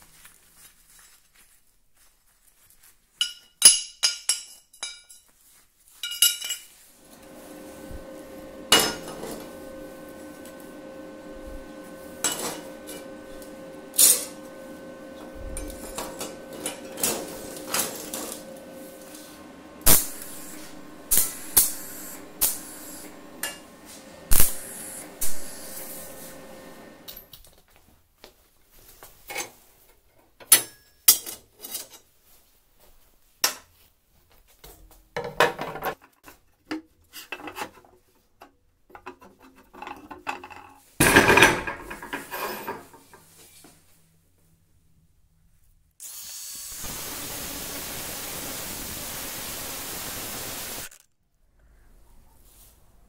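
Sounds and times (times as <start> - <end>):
steel pieces clanking: 6.0 - 6.8, 13.9 - 14.5, 15.6 - 18.6, 41.0 - 43.2
steady hum: 7.0 - 27.3.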